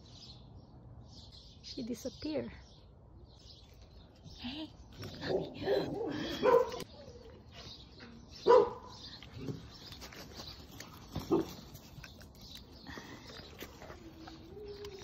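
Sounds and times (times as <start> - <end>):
dog barking: 5.2 - 6.8, 8.4 - 8.9.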